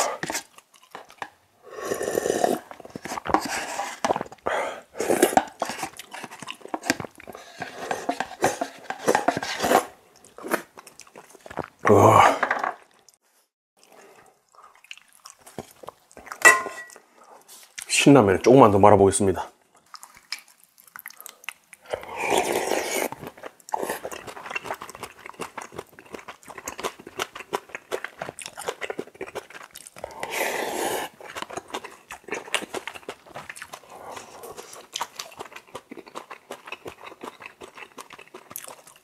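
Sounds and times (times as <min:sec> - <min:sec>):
loud slurps from a spoon: 0:01.7 - 0:04.2, 0:21.9 - 0:24.7, 0:30.0 - 0:31.3
wet chewing and lip smacks: 0:10.2 - 0:11.8, 0:13.8 - 0:17.9, 0:19.8 - 0:22.0, 0:23.0 - 0:30.2, 0:31.1 - 0:39.0.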